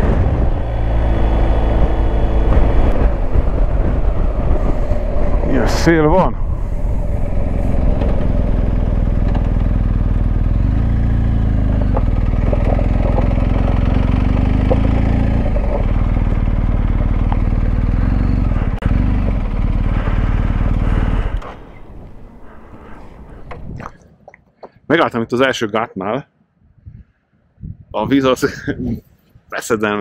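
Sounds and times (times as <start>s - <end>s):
motorcycle engine running: 0.0s - 23.8s
wind rushing over microphone: 0.0s - 24.0s, 26.6s - 29.5s.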